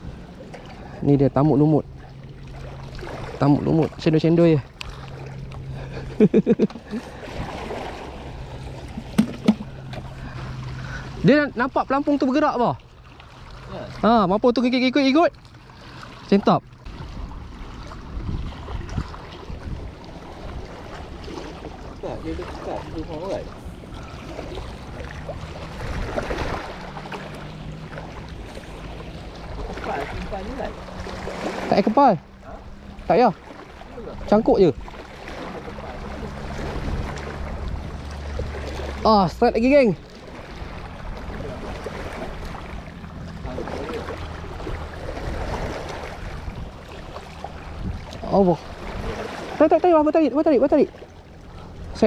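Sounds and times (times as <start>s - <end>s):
small waves lapping on rocks: 0.0s - 52.0s
wind buffeting microphone: 16.8s - 27.7s, 40.4s - 49.5s.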